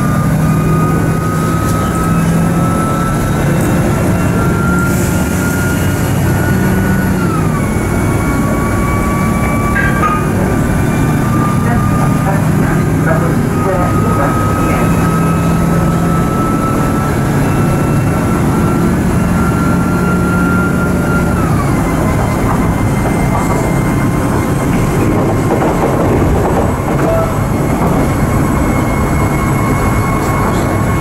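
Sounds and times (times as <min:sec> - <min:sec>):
train drive whine: 0:00.0 - 0:31.0
train running gear rumbling: 0:00.0 - 0:31.0.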